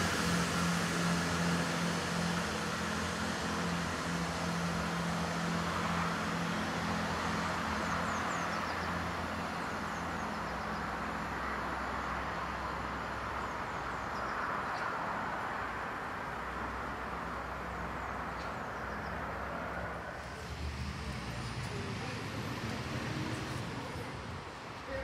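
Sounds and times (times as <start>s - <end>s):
train engine hum: 0.0s - 25.0s
small birds chirping: 17.3s - 19.6s.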